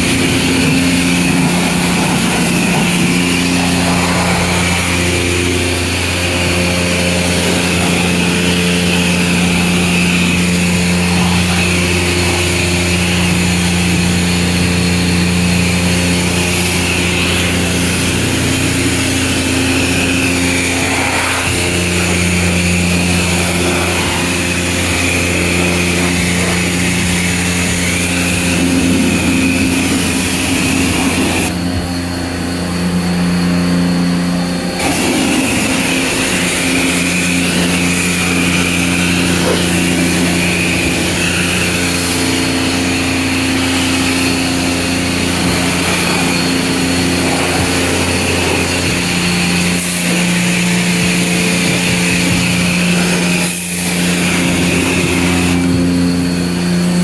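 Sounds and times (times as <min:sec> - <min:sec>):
spray gun spraying water: 0:00.0 - 0:31.6, 0:34.1 - 0:57.0
pressure pump humming: 0:00.0 - 0:57.0.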